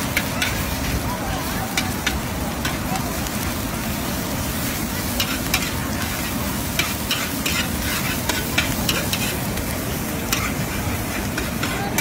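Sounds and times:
vegetables sizzling in a wok: 0:00.0 - 0:12.0
metal spatula scraping a pan: 0:05.2 - 0:09.5, 0:10.3 - 0:12.0.

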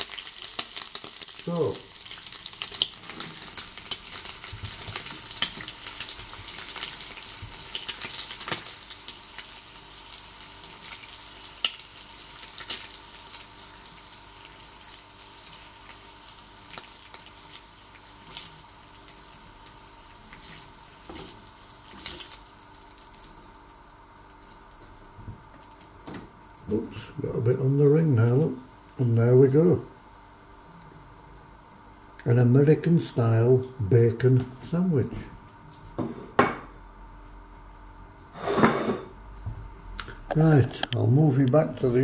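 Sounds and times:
bacon sizzling and crackling: 0:00.0 - 0:26.8, 0:27.8 - 0:31.2.

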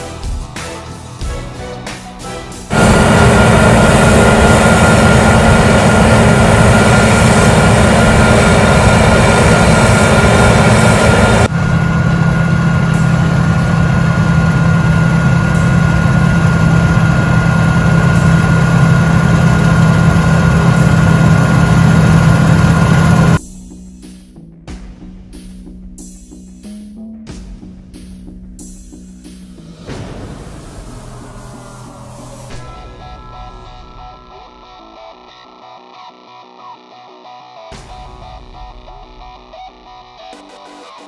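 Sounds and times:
heavy machinery engine hum: 0:02.2 - 0:23.4
thin steady whine: 0:02.7 - 0:23.4, 0:30.6 - 0:35.9.

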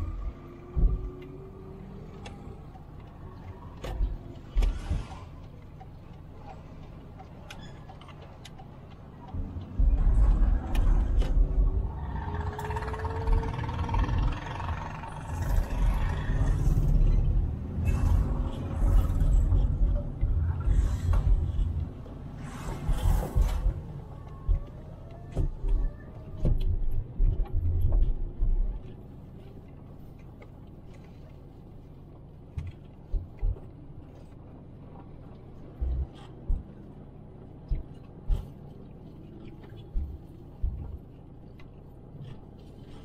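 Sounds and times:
passing traffic: 0:00.0 - 0:28.0
car driving rumble: 0:00.0 - 0:43.0.

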